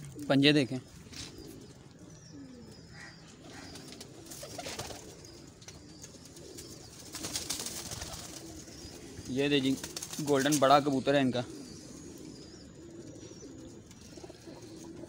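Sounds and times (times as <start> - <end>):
pigeons cooing: 0.0 - 15.0
wings flapping: 3.7 - 10.8.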